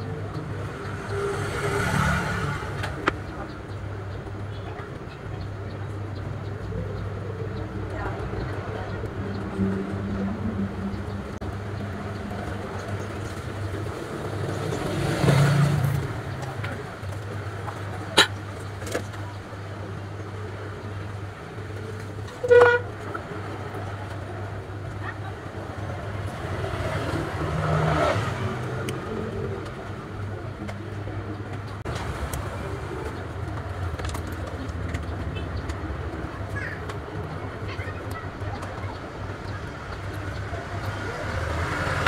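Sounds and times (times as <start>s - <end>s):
low traffic hum: 0.0s - 42.0s
vehicle horn toot: 22.4s - 22.9s.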